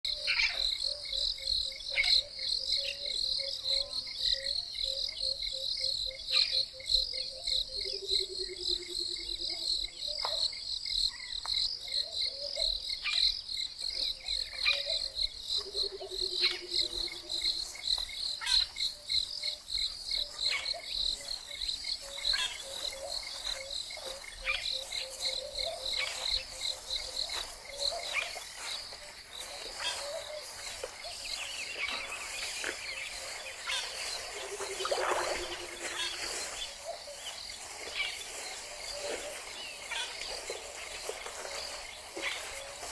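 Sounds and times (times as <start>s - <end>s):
bird calls: 0.1s - 10.5s, 11.1s - 42.9s
insect chirring: 14.3s - 42.9s.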